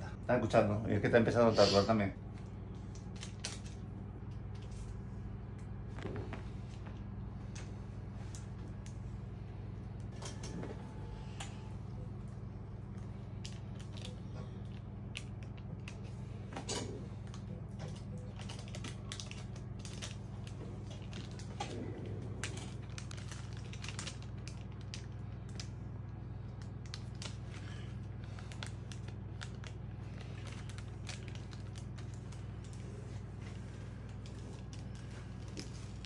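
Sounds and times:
steady low hum: 0.0s - 36.0s
paper crinkles and rustles: 12.3s - 36.0s.

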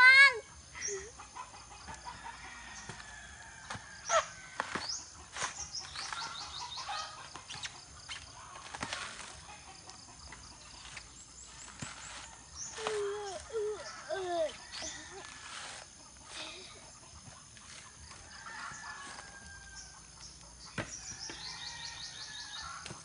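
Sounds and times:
chickens clucking: 0.6s - 21.5s
knocks on coconut husks: 4.5s - 6.2s, 20.8s - 21.5s.

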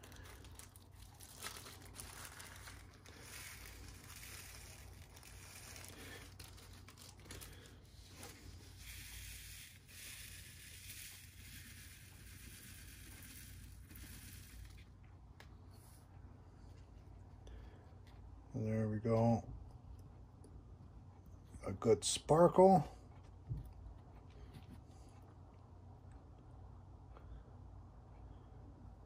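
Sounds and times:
beads poured onto plastic tray: 0.0s - 14.9s
plastic bag crinkling: 0.0s - 15.0s.

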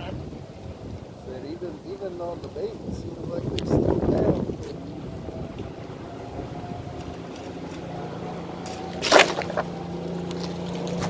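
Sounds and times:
steady background noise: 0.0s - 11.0s
twigs rustling: 6.8s - 11.0s
branch thudding on ground: 8.6s - 9.7s.

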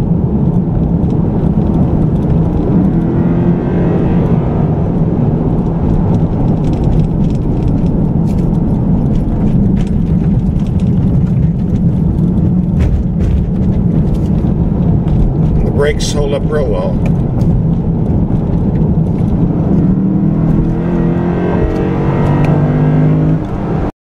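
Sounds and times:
car engine from inside cabin: 0.0s - 23.9s
tyre noise on rough pavement: 0.0s - 23.9s.

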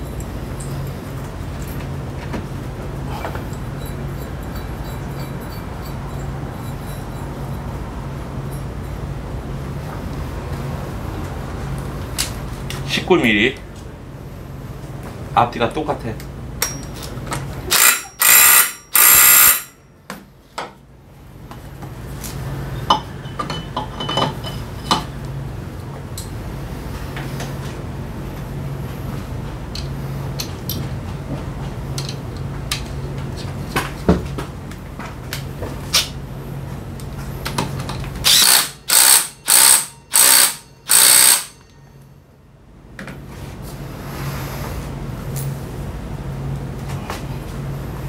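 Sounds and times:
impact wrench bursts: 17.7s - 19.8s, 38.2s - 41.7s
tool clinks: 17.7s - 19.8s, 38.2s - 42.0s.

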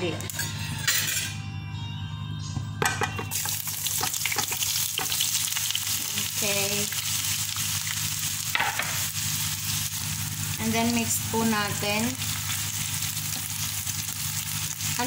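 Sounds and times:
oil sizzling in a frying pan: 3.3s - 15.0s.

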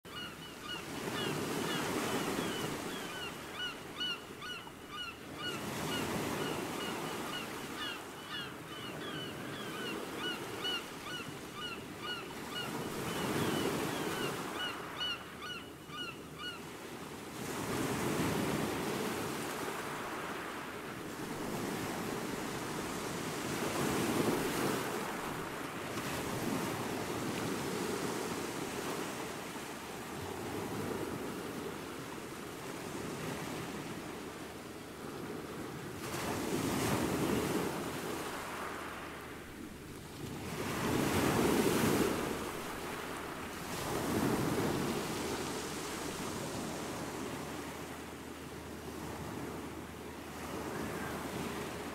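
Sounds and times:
waves washing onto sandy beach: 18.6s - 27.6s, 37.0s - 51.9s.

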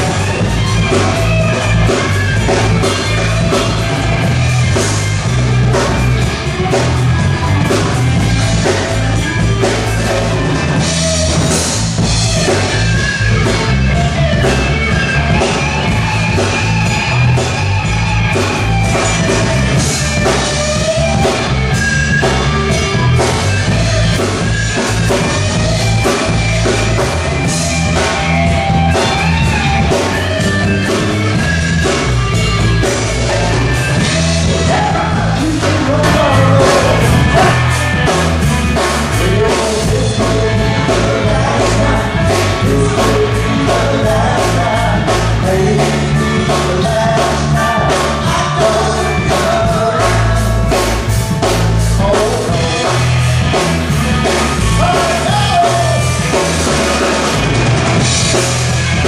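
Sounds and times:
drums: 0.0s - 59.0s
guitar: 0.0s - 59.0s
person singing: 31.8s - 57.1s.

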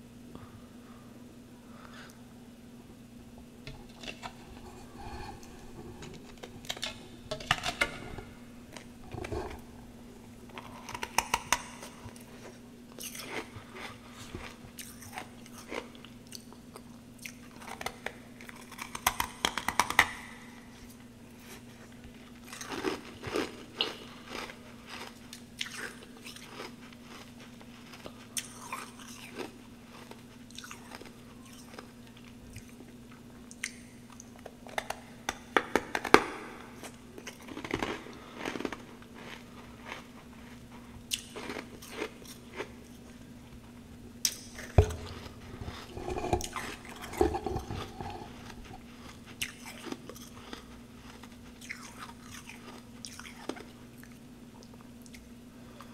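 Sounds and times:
person chewing snow crunching: 22.4s - 31.9s, 37.2s - 43.2s, 44.6s - 53.7s.

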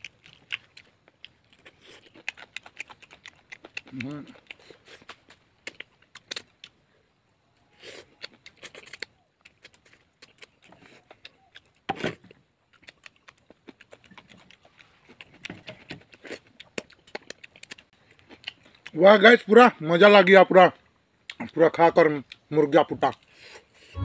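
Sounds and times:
person chewing wetly: 0.0s - 6.9s, 7.8s - 19.0s, 21.2s - 21.6s, 22.2s - 22.5s.

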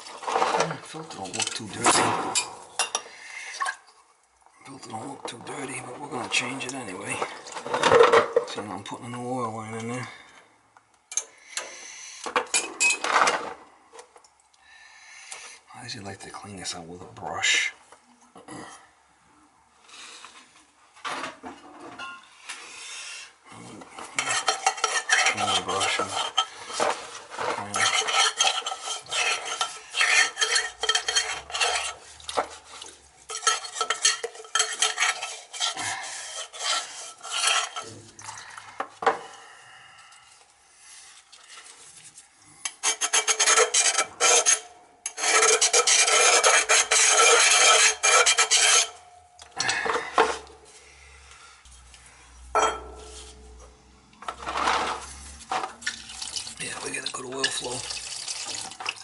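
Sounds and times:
stiff brush scrubbing metal: 24.2s - 26.8s, 27.6s - 38.0s, 42.8s - 49.0s.

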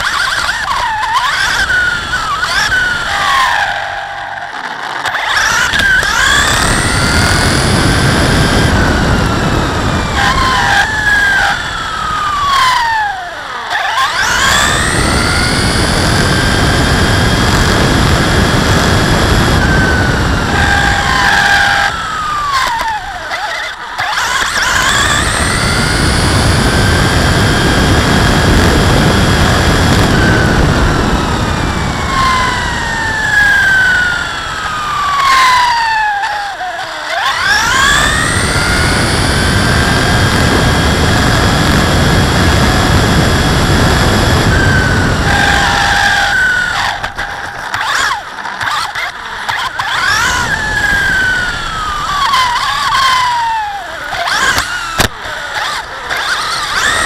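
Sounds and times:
toy truck motor whining: 0.0s - 57.0s.

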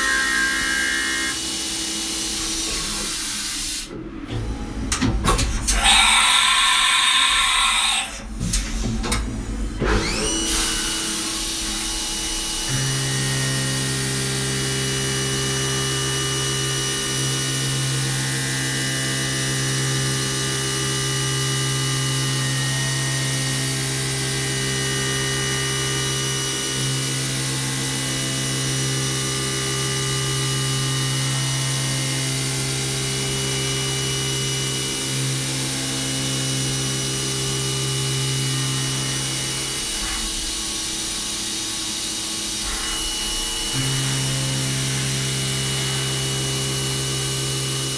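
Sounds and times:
milling machine humming: 0.0s - 4.4s, 29.0s - 47.9s.

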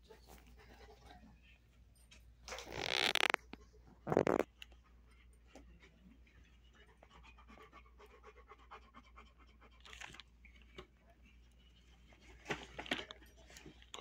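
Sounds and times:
dog panting: 0.0s - 1.6s, 4.7s - 10.5s.

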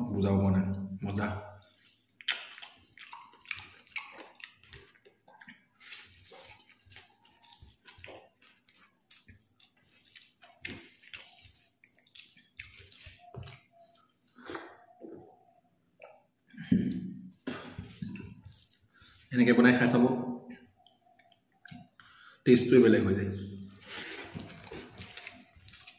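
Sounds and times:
wet chewing smacks: 1.6s - 15.1s, 24.0s - 25.9s
fingers mixing rice: 3.0s - 14.5s.

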